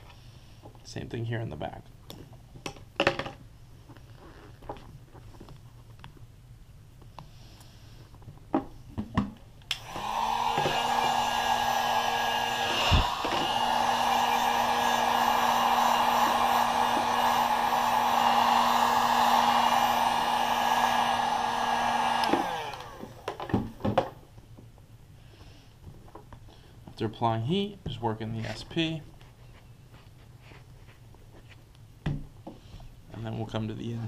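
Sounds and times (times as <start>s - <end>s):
heat gun blowing hum: 9.7s - 23.8s.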